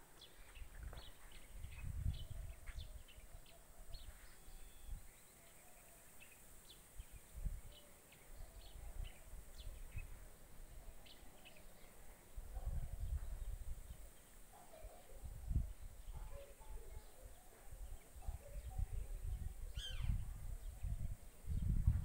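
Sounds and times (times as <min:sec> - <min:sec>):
low rumbling on microphone: 0:00.6 - 0:03.0, 0:17.7 - 0:22.0
bird chirps: 0:19.7 - 0:20.2.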